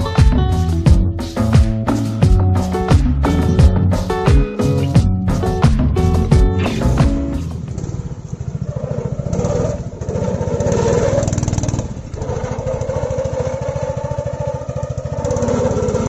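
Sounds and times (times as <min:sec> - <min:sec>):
small engine puttering: 0:06.6 - 0:16.0.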